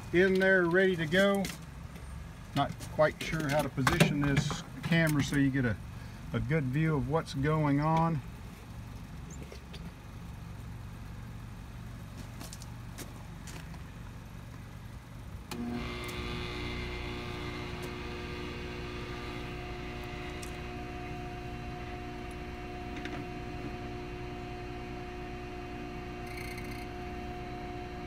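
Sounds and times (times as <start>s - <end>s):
low hum: 13.7s - 28.0s
key cutting machine whining: 15.5s - 28.0s.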